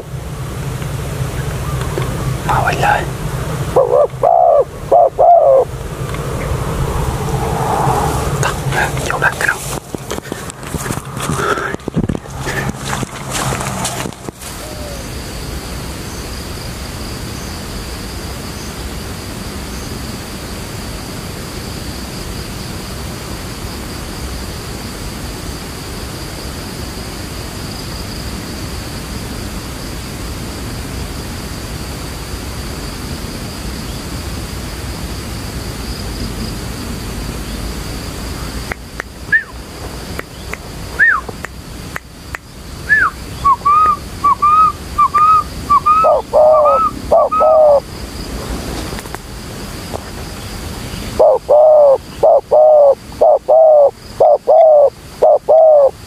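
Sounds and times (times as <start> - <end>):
high insect drone: 0.0 - 56.0
outdoor background hiss: 0.0 - 56.0
bird whistles: 39.3 - 39.6, 41.0 - 41.3, 42.9 - 47.6.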